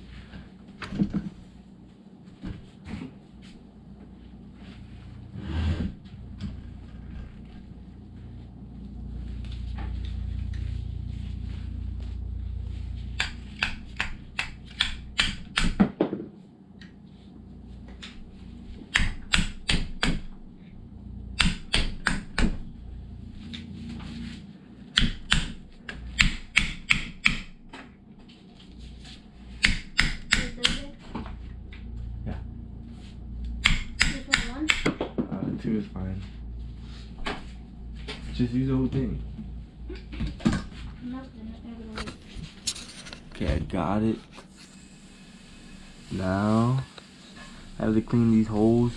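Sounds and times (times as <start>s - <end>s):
low handling rumble: 3.6s - 15.2s, 20.2s - 21.4s, 22.2s - 24.9s, 30.5s - 42.6s
sharp tapping on metal bushings: 29.6s - 30.8s.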